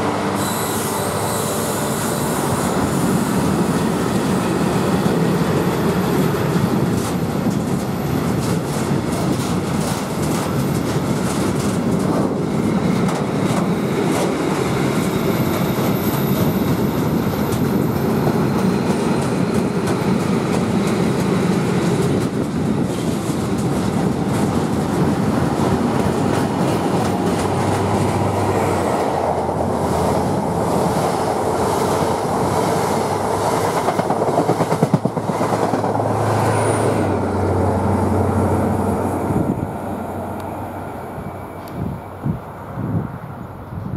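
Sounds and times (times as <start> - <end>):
passenger train passing: 0.0 - 43.9
freight train wheels clattering: 6.0 - 37.1.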